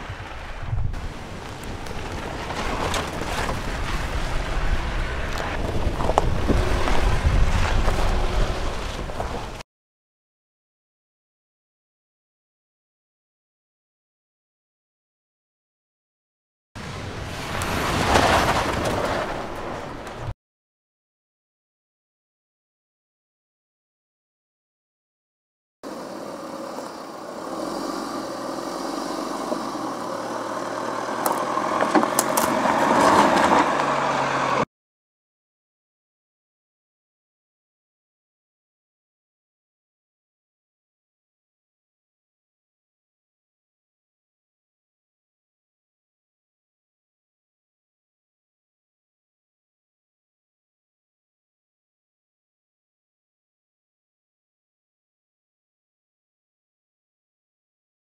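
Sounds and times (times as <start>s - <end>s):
engine and tyres rumbling: 0.0s - 9.6s, 16.8s - 20.3s, 25.8s - 34.7s
wind noise on microphone: 0.0s - 9.6s
stones crunching: 1.4s - 9.6s, 29.4s - 33.7s
car engine running: 25.8s - 34.6s.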